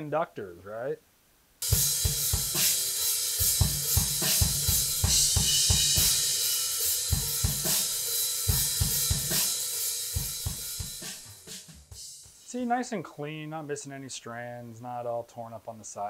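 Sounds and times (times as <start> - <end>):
drum-kit beat: 1.6 - 13.4.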